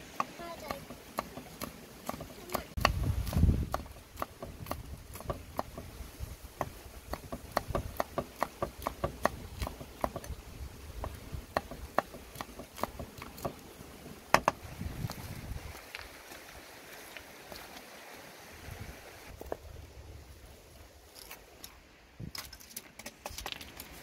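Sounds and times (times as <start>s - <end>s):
knife chopping on wooden block: 0.1s - 5.9s, 6.6s - 10.4s, 11.0s - 13.6s, 14.3s - 14.6s.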